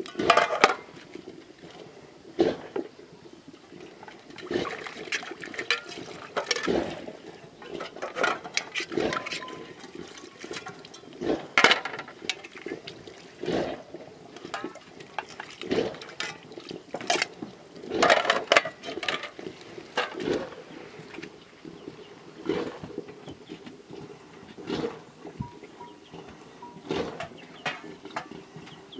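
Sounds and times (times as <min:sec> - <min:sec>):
water splashing: 0:03.7 - 0:21.8
metal dishes clinking: 0:05.6 - 0:06.8, 0:07.6 - 0:12.5, 0:14.4 - 0:15.5.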